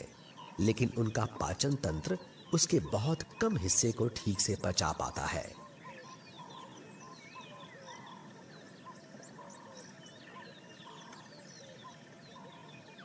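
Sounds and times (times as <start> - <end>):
birds whistling and chirping: 0.0 - 13.0.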